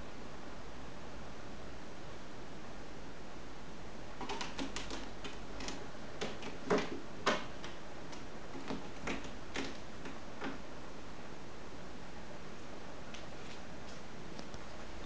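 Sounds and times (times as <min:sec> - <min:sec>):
cat claws clicking on cat tree: 0:04.2 - 0:10.6.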